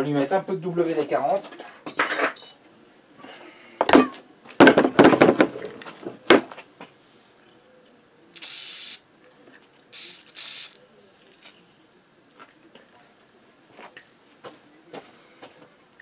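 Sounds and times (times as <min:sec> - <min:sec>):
tools clunking on wooden workbench: 0:01.5 - 0:02.6
aerosol spray hissing: 0:08.4 - 0:09.0, 0:10.0 - 0:12.4.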